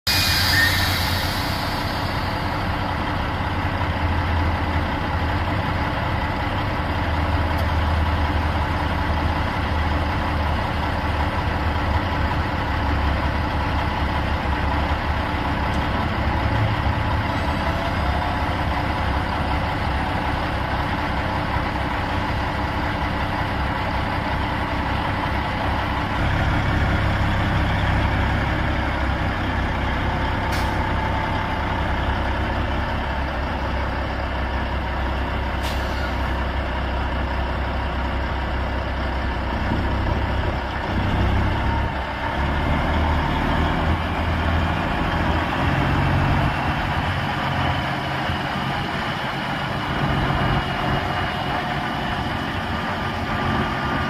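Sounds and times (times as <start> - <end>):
diesel truck idling: 0.1 - 54.0.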